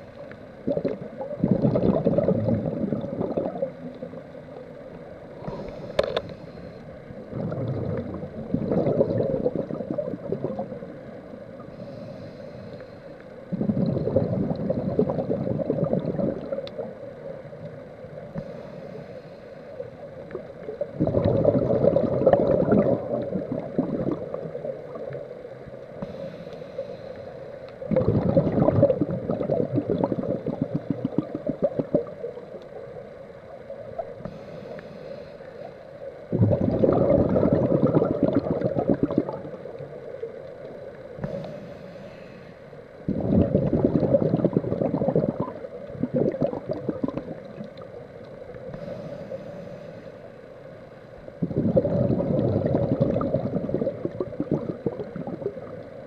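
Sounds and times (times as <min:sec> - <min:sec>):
underwater exhaled bubbles: 0:00.0 - 0:50.2, 0:51.2 - 0:56.0
faint hiss of inhaling: 0:05.3 - 0:07.4, 0:10.7 - 0:13.8, 0:18.0 - 0:20.7, 0:24.6 - 0:27.9, 0:32.5 - 0:36.3, 0:39.3 - 0:43.2, 0:47.3 - 0:51.6.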